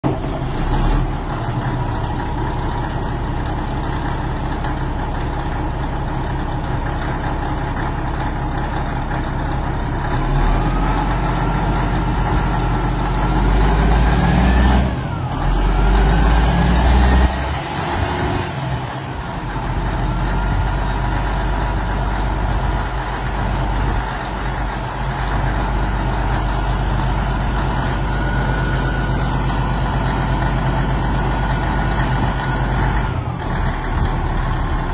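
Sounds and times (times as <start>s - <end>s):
diesel engine idling and revving: 0.0s - 34.9s.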